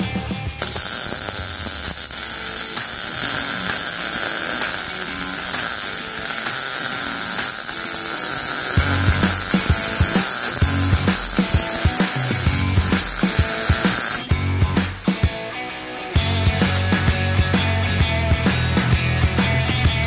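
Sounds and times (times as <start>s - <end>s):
welder arc crackling and hissing: 0.6s - 14.3s.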